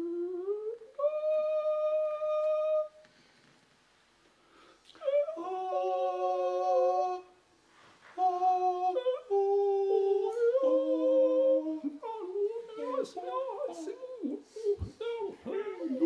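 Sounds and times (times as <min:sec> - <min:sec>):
voices singing in harmony: 0:05.0 - 0:16.0.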